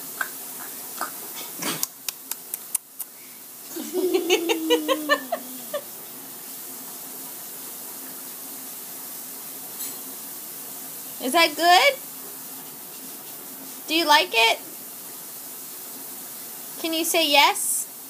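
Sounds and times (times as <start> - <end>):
toddler giggling: 3.7 - 5.8.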